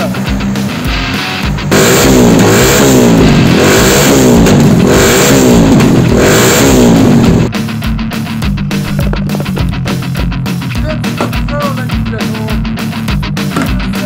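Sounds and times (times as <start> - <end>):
small engine revving: 0.0 - 7.5
rock music: 0.0 - 14.0.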